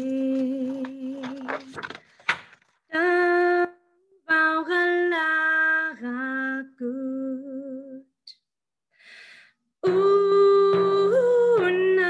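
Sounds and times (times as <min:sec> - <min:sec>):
woman singing unaccompanied: 0:00.0 - 0:01.8, 0:02.9 - 0:08.1, 0:09.8 - 0:12.0.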